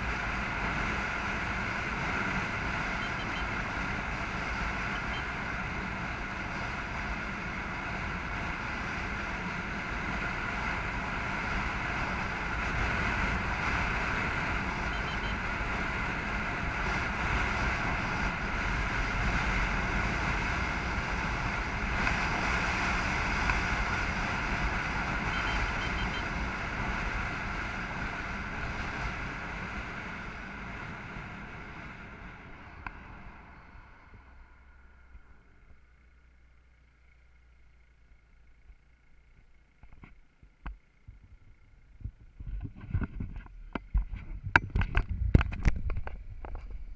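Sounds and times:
vehicle road noise: 0.0s - 46.9s
wind buffeting microphone: 42.0s - 46.9s.

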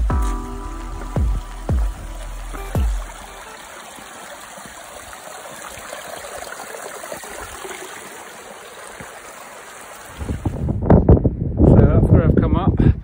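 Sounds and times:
stream trickling among rocks: 0.3s - 10.7s
footsteps on stone: 3.8s - 6.0s, 8.9s - 9.2s.

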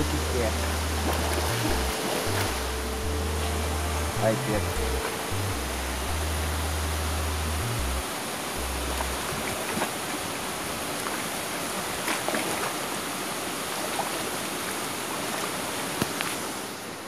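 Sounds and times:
bass line background music: 0.0s - 9.3s
steady rushing water: 0.0s - 17.0s.

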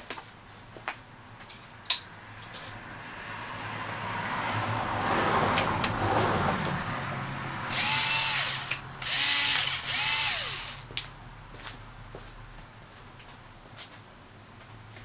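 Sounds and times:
cordless drill motor whining: 7.7s - 10.9s.

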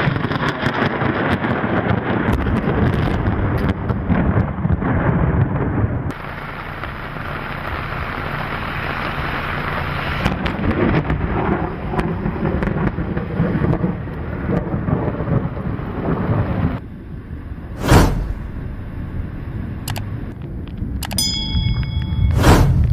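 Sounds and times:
thunder rumbling: 0.0s - 21.0s
scattered clicks: 19.8s - 22.1s.

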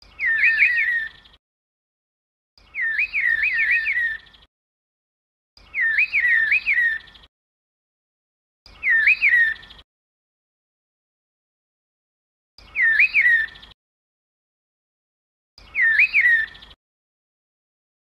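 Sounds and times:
bird call: 0.0s - 1.4s, 2.6s - 4.5s, 5.6s - 7.3s, 8.7s - 9.8s, 12.6s - 13.8s, 15.6s - 16.8s.

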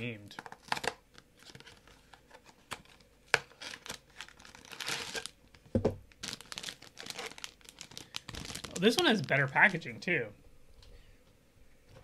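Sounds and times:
plastic packaging crinkling: 0.4s - 10.0s.

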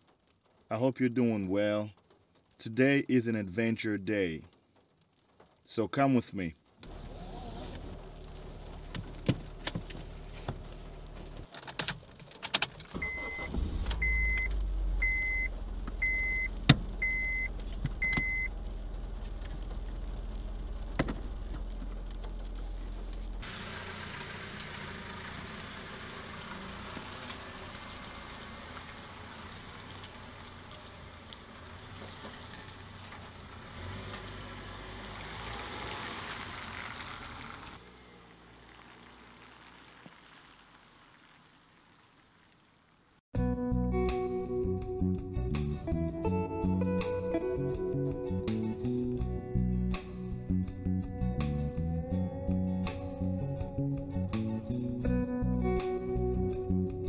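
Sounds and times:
rain and tyres on wet pavement: 0.0s - 3.0s, 4.1s - 43.2s
car engine idling: 6.9s - 11.5s, 13.0s - 43.1s
short electronic beeps: 13.0s - 18.5s.

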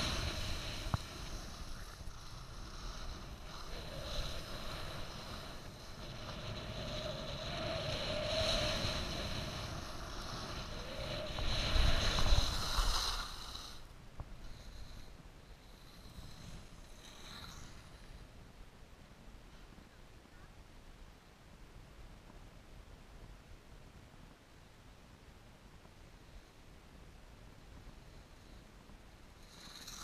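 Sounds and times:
skis scraping on snow: 0.0s - 13.8s
wind rushing over microphone: 0.0s - 15.0s.

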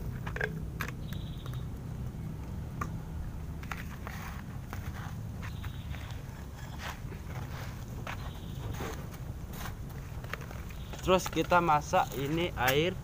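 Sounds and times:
stick scraping through sand: 3.7s - 9.8s.

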